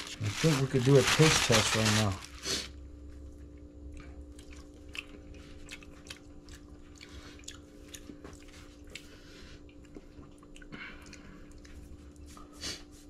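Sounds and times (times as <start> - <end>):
faint steady hum: 0.0 - 13.0
person chewing wetly: 3.2 - 12.4.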